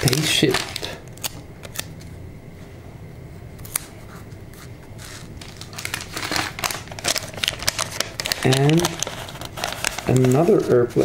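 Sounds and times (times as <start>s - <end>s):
light paper rustle: 4.5s - 11.0s.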